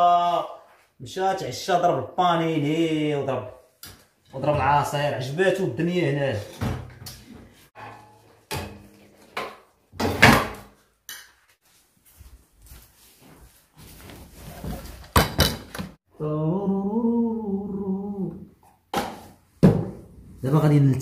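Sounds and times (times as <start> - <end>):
kitchenware knocking and clattering: 6.4 - 10.7, 15.1 - 16.0.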